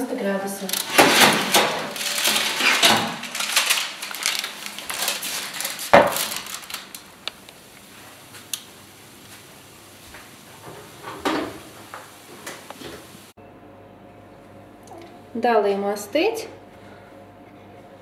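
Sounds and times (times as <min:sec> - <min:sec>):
metal baking tray scraping on oven rack: 0:00.6 - 0:06.0
loud metal clunk: 0:00.8 - 0:03.9.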